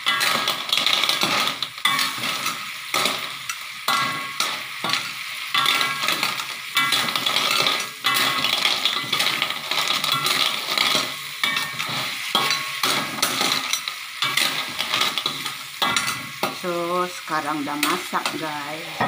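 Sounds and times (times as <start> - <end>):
spatula scraping the pan: 0.0 - 16.6
stir-fry sizzling in a wok: 0.0 - 19.0.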